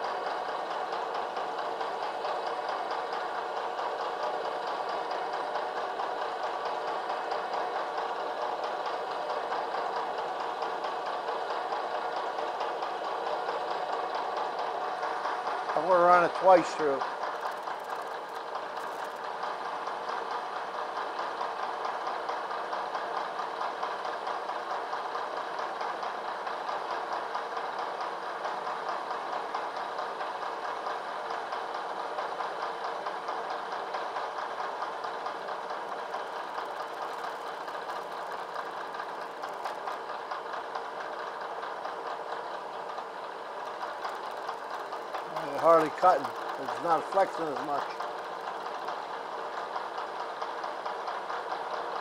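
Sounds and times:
milling machine whirring: 14.1s - 19.4s, 33.7s - 51.5s.

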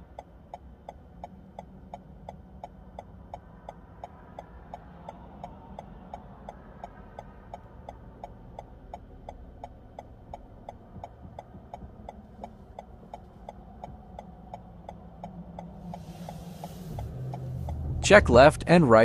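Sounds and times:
car turn signal clicking: 0.0s - 17.9s
low engine hum: 0.0s - 19.0s
soft hiss: 15.7s - 17.9s.

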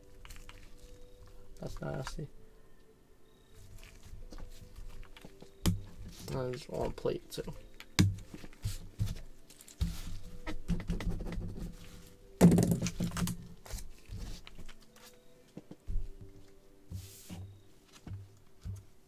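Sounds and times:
cards and plastic holders tapping: 4.4s - 11.6s.

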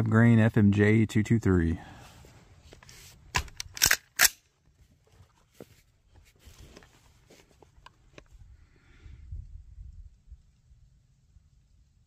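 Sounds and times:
rifle shot: 3.4s - 4.4s.

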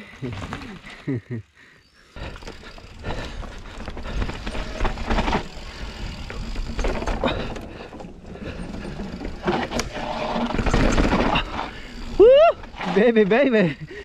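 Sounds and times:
bike tyres rolling on dirt: 0.0s - 1.2s, 1.9s - 14.0s
bike clattering over bumps: 2.2s - 14.0s.

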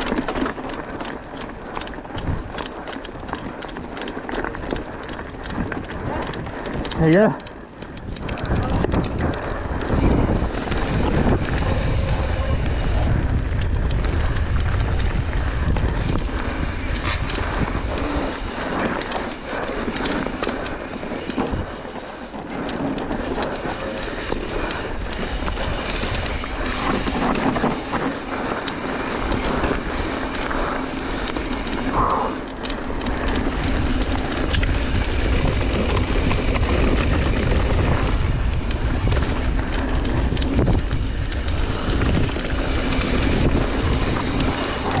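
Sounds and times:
bike rattling over rough ground: 0.0s - 45.0s
bike tyres rolling: 0.0s - 45.0s
wind buffeting microphone: 0.0s - 45.0s.

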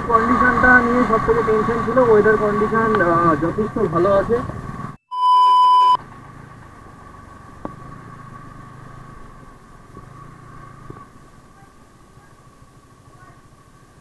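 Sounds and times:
motorcycle engine at low speed: 0.0s - 5.0s, 6.0s - 14.0s
test-tone beep: 5.1s - 6.0s.

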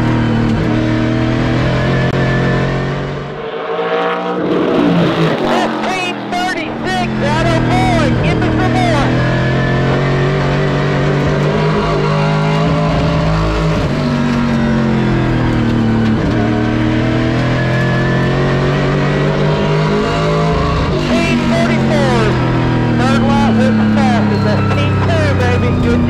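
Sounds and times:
race car engine running hard: 0.0s - 26.0s.

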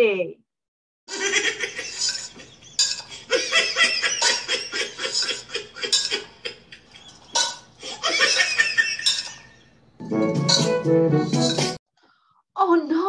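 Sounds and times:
person laughing: 1.2s - 9.2s.

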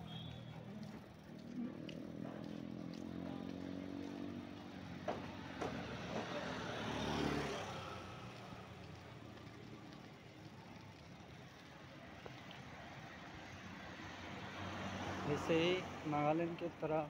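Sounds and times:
oncoming motorbike passing: 0.0s - 8.8s.

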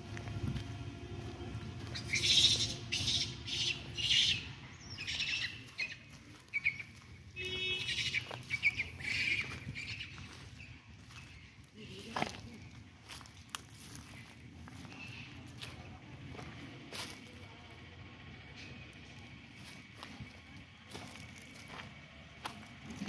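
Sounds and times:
birds calling: 0.0s - 23.0s
low background rumble: 0.0s - 23.0s.

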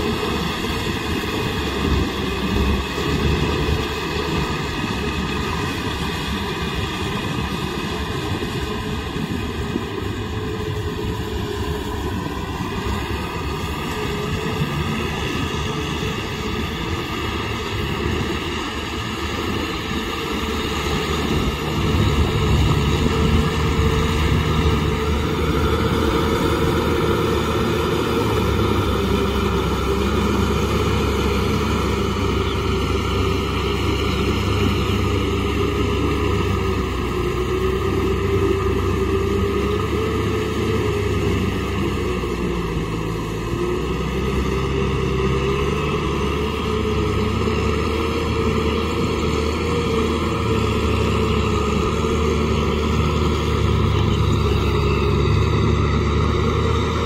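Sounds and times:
tractor churning mud: 0.0s - 57.0s
tractor diesel engine under load: 0.0s - 57.0s.

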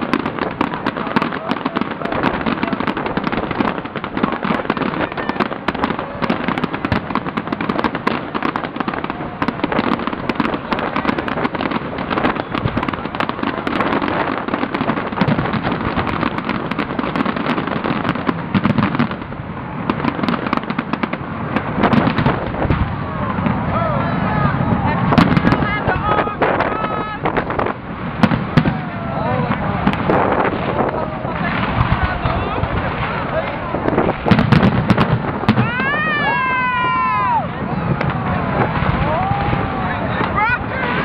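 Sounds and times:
fireworks banging and crackling: 0.0s - 41.0s.

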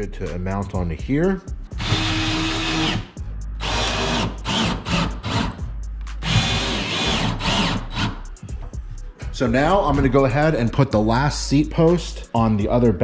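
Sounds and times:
power drill running: 1.8s - 5.6s, 6.2s - 8.2s.

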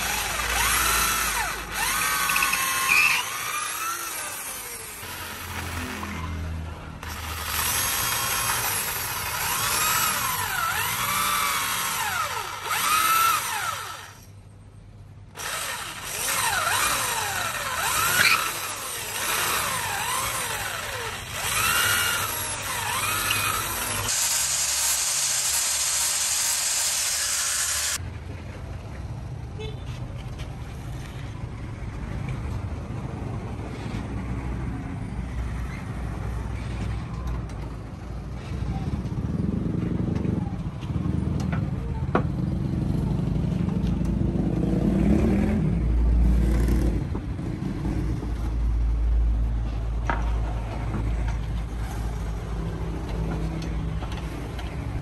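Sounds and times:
electric drill boring into wood: 0.0s - 6.2s, 7.0s - 14.2s, 15.4s - 28.0s.

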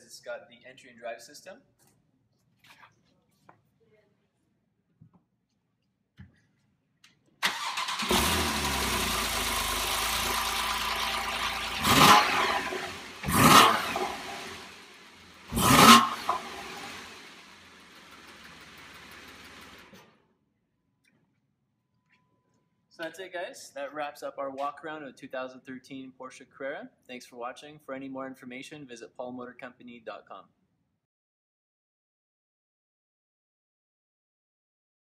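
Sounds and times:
car engine starting and idling: 7.4s - 20.1s
engine throttle blips: 7.4s - 20.1s.

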